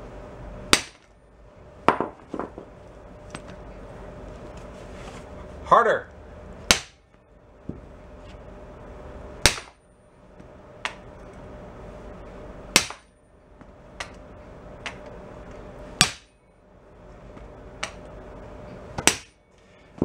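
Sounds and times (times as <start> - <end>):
sledgehammer striking steel: 9.4 - 9.8, 12.7 - 13.1, 16.0 - 16.4, 19.0 - 19.4.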